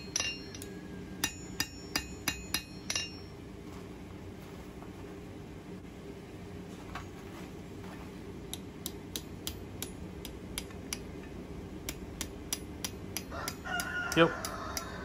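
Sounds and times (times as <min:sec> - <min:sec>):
hammer striking hot steel: 0:00.0 - 0:03.4, 0:08.5 - 0:11.2, 0:11.8 - 0:15.0.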